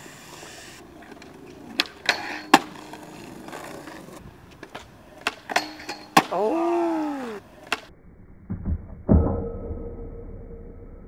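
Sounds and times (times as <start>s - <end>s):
skateboard rolling on concrete: 0.0s - 7.9s
skateboard clacks: 1.0s - 6.6s, 7.6s - 7.9s.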